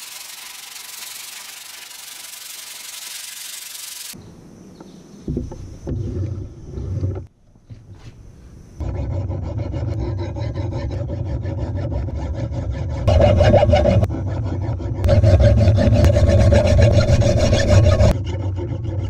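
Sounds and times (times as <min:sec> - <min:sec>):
file rasping on steel: 0:08.8 - 0:19.0.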